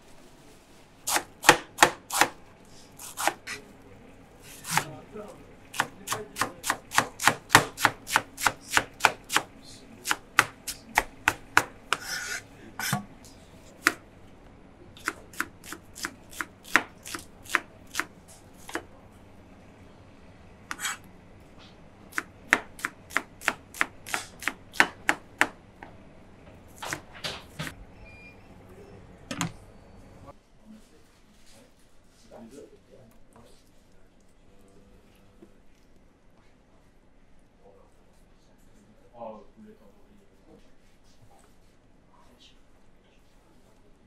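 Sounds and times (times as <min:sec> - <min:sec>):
knife chopping on cutting board: 0:01.1 - 0:02.4, 0:03.0 - 0:03.6, 0:04.5 - 0:05.0, 0:05.7 - 0:14.0, 0:15.0 - 0:18.9, 0:20.7 - 0:21.0, 0:22.1 - 0:25.6, 0:26.8 - 0:27.7.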